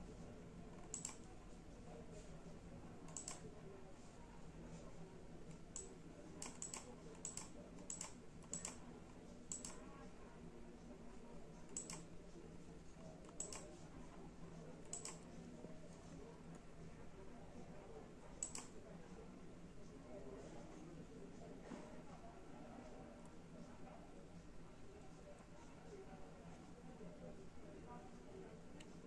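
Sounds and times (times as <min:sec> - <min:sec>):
computer mouse clicking: 0:00.7 - 0:01.3, 0:03.1 - 0:03.5, 0:05.5 - 0:08.8, 0:09.5 - 0:09.8, 0:11.7 - 0:12.1, 0:13.2 - 0:13.7, 0:14.8 - 0:15.2, 0:18.4 - 0:18.7.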